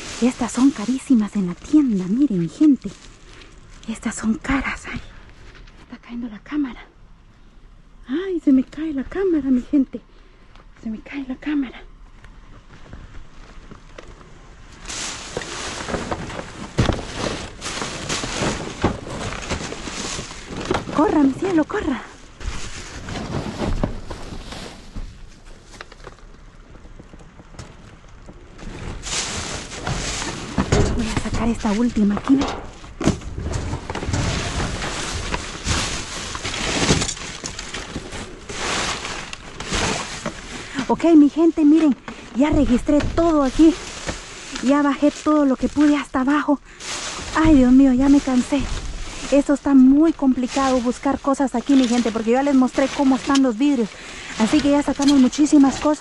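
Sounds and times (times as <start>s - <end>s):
trash rustling and clattering: 0.0s - 5.9s, 12.5s - 56.0s
broken glass crunching: 32.5s - 40.2s.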